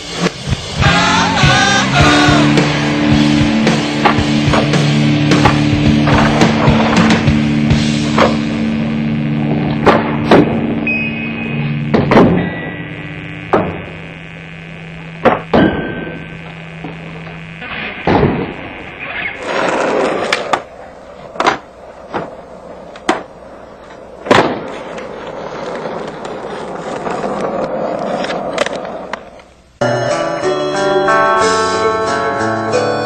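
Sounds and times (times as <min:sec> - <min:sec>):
skateboard wheels rolling on concrete: 0:00.0 - 0:15.5, 0:16.2 - 0:29.9
skateboard clacks: 0:04.0 - 0:07.4, 0:19.4 - 0:29.5.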